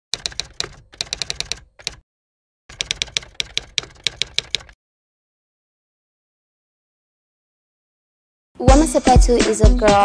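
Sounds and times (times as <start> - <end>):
typewriter keys clacking: 0.1 - 2.0, 2.7 - 4.8.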